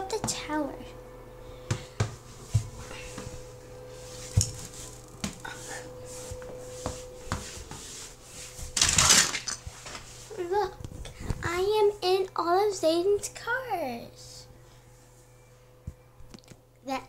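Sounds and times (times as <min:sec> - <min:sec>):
faint steady hum: 0:00.0 - 0:17.0
handling noise: 0:02.1 - 0:05.6.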